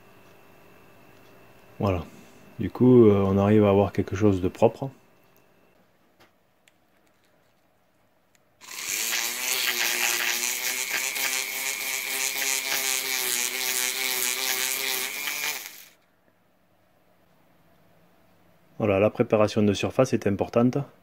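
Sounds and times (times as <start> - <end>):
rotary tool grinding inside pipe: 8.6 - 16.0.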